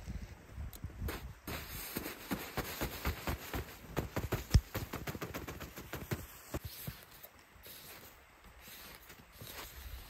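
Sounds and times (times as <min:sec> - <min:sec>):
hand slapping snow off tent fabric: 0:01.1 - 0:07.1.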